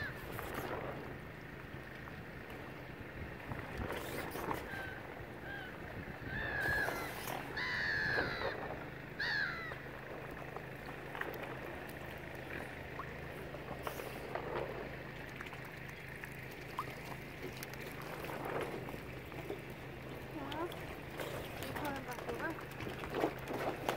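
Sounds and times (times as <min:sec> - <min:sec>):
steady low hum: 0:00.0 - 0:23.9
water splashing and lapping: 0:00.0 - 0:23.9
high bird calls: 0:04.0 - 0:10.1.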